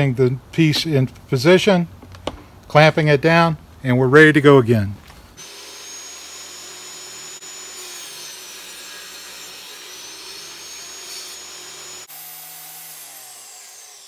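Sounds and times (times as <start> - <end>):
table saw whining: 5.4 - 14.0.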